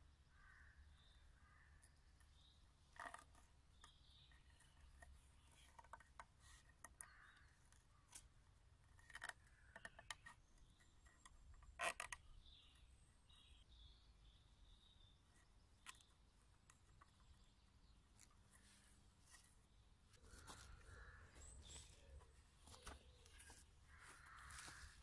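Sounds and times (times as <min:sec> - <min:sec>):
cord scratching on bark: 0:02.8 - 0:12.8, 0:15.4 - 0:25.0.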